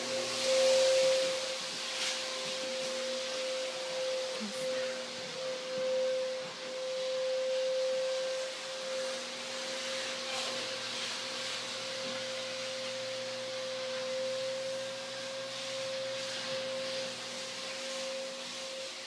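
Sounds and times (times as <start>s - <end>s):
constant hiss: 0.0s - 19.0s
steady high-pitched tone: 0.0s - 19.0s.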